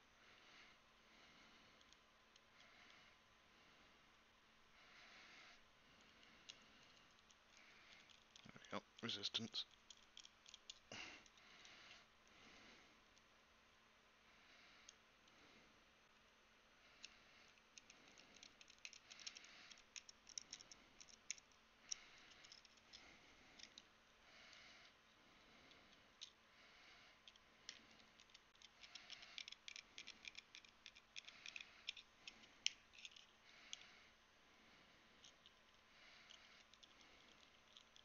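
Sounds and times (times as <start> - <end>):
screwdriver clicking and scraping: 17.8 - 22.9, 27.2 - 33.8.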